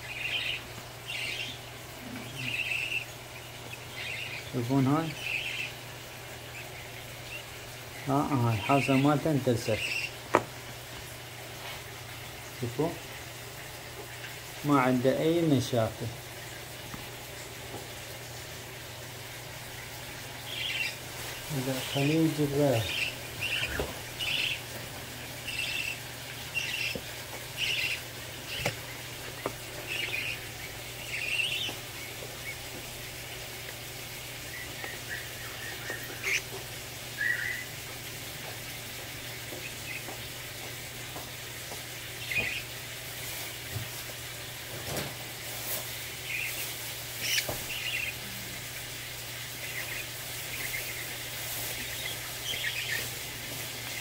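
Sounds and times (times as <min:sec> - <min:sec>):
parrot chick chirping: 0:00.0 - 0:10.2, 0:20.4 - 0:37.8, 0:38.8 - 0:42.8, 0:46.2 - 0:54.0.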